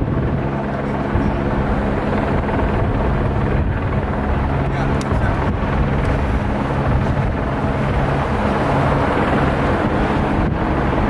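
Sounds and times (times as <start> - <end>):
freeway traffic passing: 0.0 - 11.0
low engine hum: 0.0 - 11.0.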